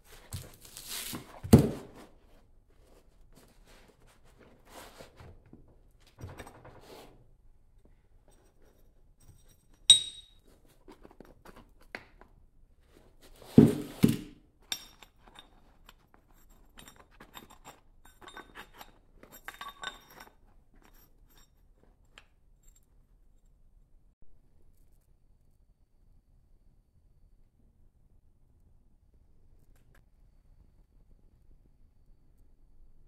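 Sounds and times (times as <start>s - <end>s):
ringing metal clink: 9.3s - 10.4s
metal scraping and clinking: 14.6s - 22.8s.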